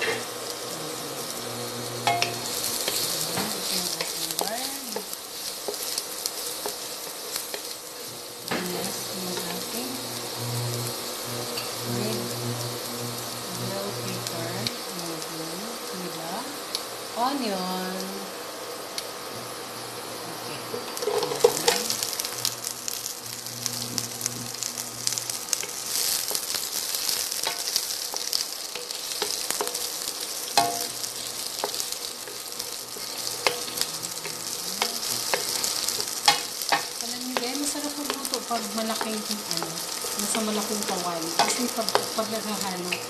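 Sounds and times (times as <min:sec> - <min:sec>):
vegetables sizzling in a pan: 0:00.0 - 0:43.0
wooden spatula scraping a pan: 0:20.8 - 0:22.0.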